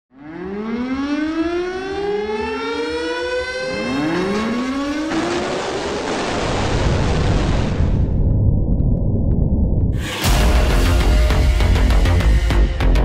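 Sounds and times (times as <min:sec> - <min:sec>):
air-raid siren wailing: 0:00.1 - 0:05.6
roar of missile launches: 0:04.2 - 0:08.7.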